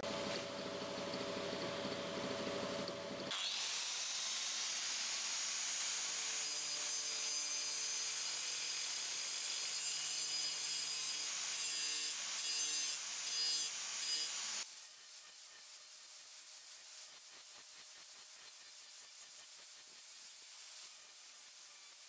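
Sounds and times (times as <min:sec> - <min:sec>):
angle grinder cutting wood: 0:03.3 - 0:15.8.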